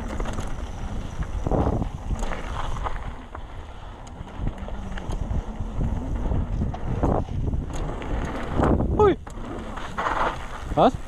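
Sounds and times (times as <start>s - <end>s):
bike knocks and rattles: 0.0s - 11.0s
rumble of bike tyres: 0.0s - 11.0s
wind on microphone: 0.0s - 11.0s.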